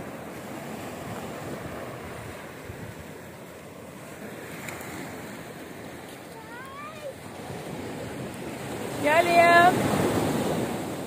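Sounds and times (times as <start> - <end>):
wind buffeting microphone: 0.0 - 3.3
waves breaking on sandy beach: 0.0 - 11.0.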